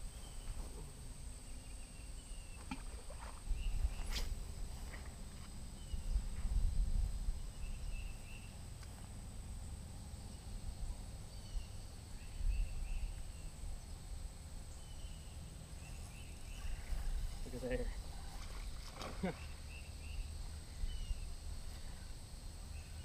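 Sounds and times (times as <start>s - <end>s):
wind rumbling on microphone: 2.9s - 8.4s.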